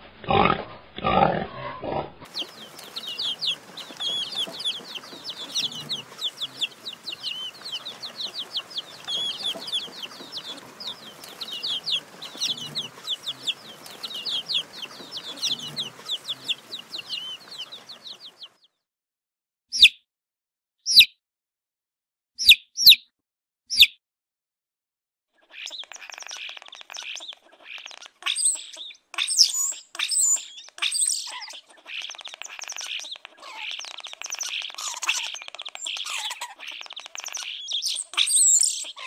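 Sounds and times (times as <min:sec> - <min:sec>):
baby chicks peeping: 0:02.2 - 0:18.8, 0:20.9 - 0:21.1, 0:25.4 - 0:39.0.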